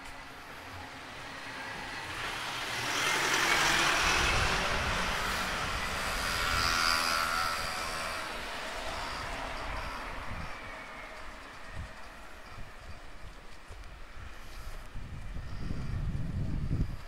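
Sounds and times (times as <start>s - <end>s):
vehicle passing by: 0.6s - 11.6s
faint high squeal: 7.1s - 11.6s.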